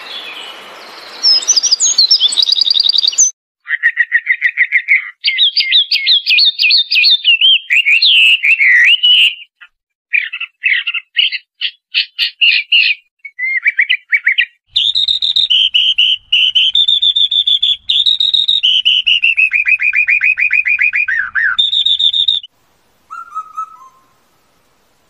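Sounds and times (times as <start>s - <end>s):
skylark trilling song: 1.2s - 22.5s
cuckoo whistled notes: 14.8s - 22.5s, 23.1s - 24.2s.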